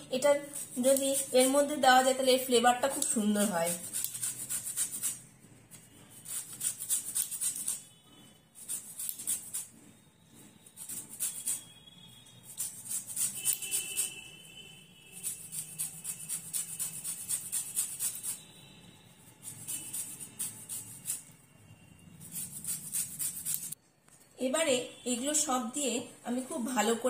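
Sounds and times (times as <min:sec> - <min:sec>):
orange rasping on zest grater: 0:00.2 - 0:05.2, 0:06.0 - 0:07.8, 0:08.6 - 0:11.7, 0:12.5 - 0:14.2, 0:15.2 - 0:18.5, 0:19.4 - 0:21.3, 0:22.2 - 0:23.8.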